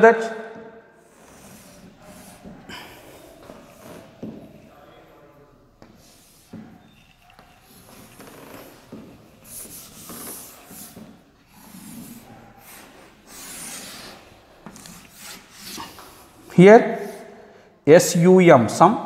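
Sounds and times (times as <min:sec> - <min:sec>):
chalk rubbing on blackboard: 0:01.1 - 0:02.6, 0:05.8 - 0:16.2.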